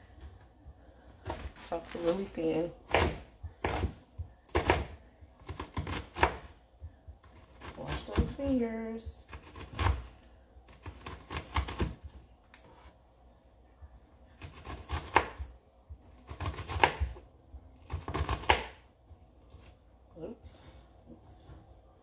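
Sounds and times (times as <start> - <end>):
knife chopping on cutting board: 2.9 - 6.5, 14.4 - 15.5, 16.2 - 17.2, 17.8 - 18.8.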